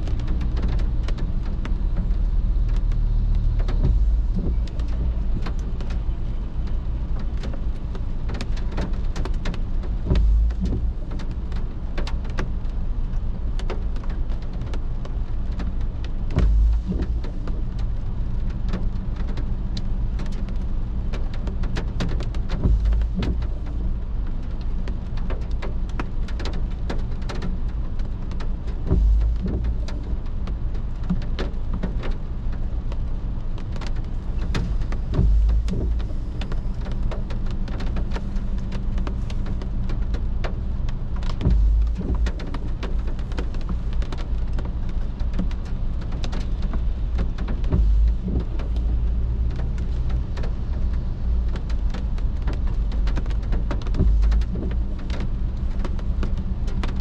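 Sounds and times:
rain on car windshield: 0.0 - 57.0
heavy low thump: 3.2 - 5.7, 10.0 - 11.2, 16.3 - 17.4, 22.6 - 23.7, 28.9 - 29.9, 34.3 - 37.3, 41.1 - 42.8, 47.1 - 49.8, 53.8 - 55.0.

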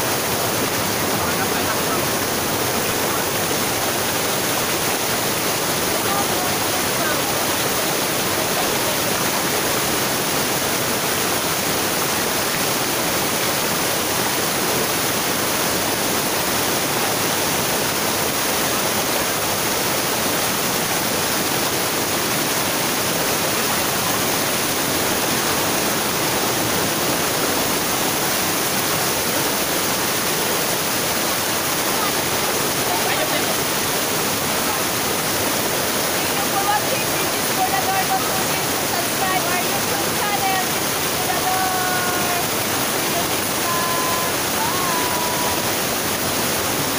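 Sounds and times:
waterfall rushing over rocks: 0.0 - 46.9.

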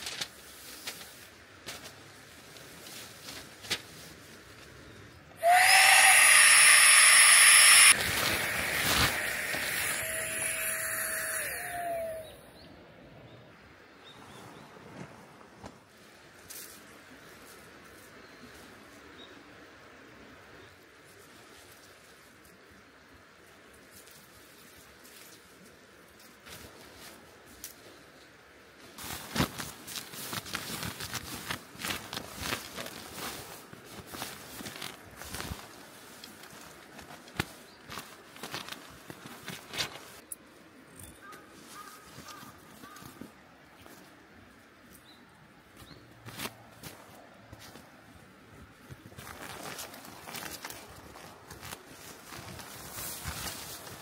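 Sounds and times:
mini air pump whirring hiss: 5.4 - 11.5
mat fabric rustling: 29.0 - 40.2.

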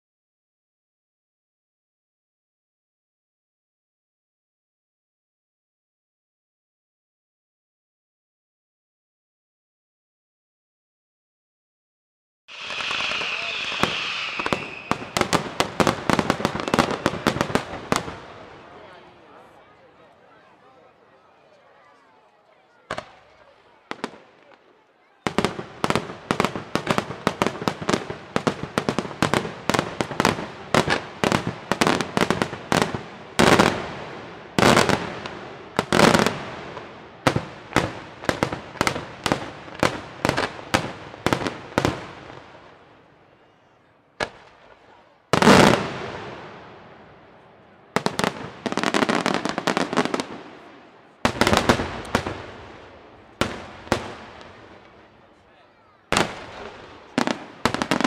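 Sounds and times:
loud firework blast: 12.5 - 18.6, 48.0 - 54.8
firework crackling: 12.5 - 19.6, 25.3 - 42.8, 48.0 - 55.2, 56.1 - 58.0
fireworks bangs: 12.5 - 19.6, 22.8 - 43.1, 44.2 - 58.0.

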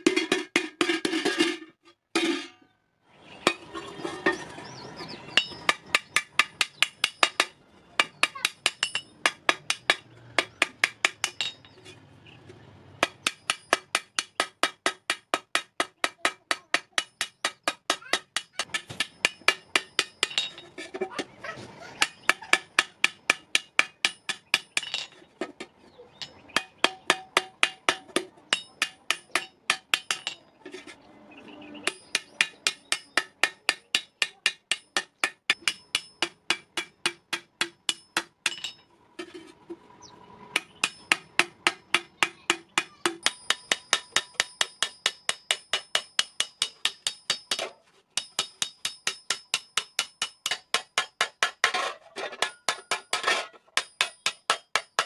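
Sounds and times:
hammer ringing on metal: 5.3 - 11.8, 13.0 - 20.6, 26.2 - 30.4, 31.8 - 38.9, 40.5 - 51.7.

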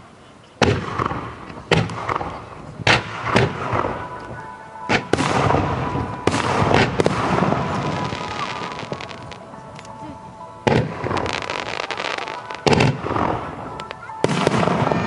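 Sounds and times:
fireworks crackling and fizzing: 0.0 - 15.0
fireworks bangs: 0.6 - 15.0.

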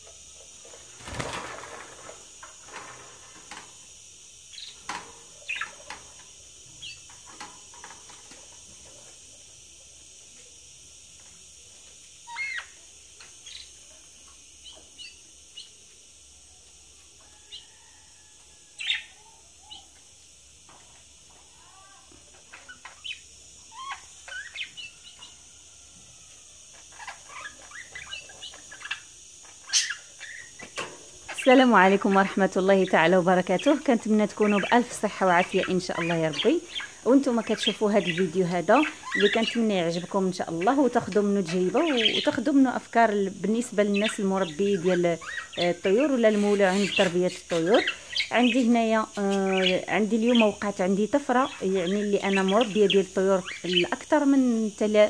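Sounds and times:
faint high hiss: 0.0 - 55.0
wing flapping: 0.6 - 3.8
high bird chirps: 4.5 - 5.9, 12.2 - 12.8, 22.5 - 25.4, 33.6 - 42.4, 43.9 - 50.7
budgerigars chattering: 41.5 - 42.4, 44.0 - 50.6.

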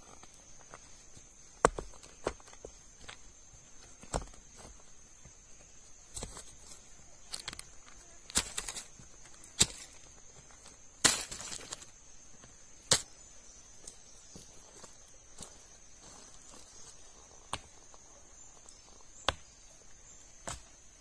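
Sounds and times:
hand scraping loose soil: 6.1 - 12.0
stones clicking on stone: 7.3 - 9.0.

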